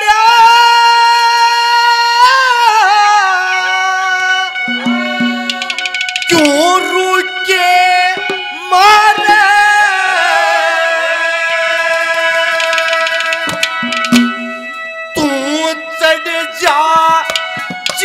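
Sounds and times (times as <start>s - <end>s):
man singing long note: 0.0s - 13.8s
harmonium: 0.0s - 18.0s
hand drum strokes: 4.7s - 6.7s, 12.5s - 14.7s.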